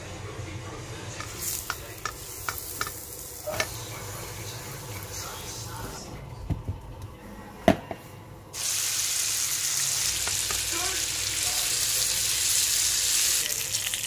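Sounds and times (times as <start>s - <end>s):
chicken sizzling in a wok: 1.2s - 5.2s, 8.6s - 14.0s.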